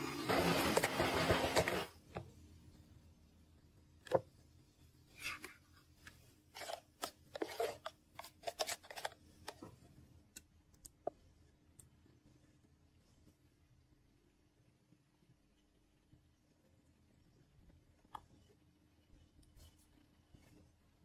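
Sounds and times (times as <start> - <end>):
spoon scraping plastic beaker: 0.3 - 1.9, 6.5 - 9.5.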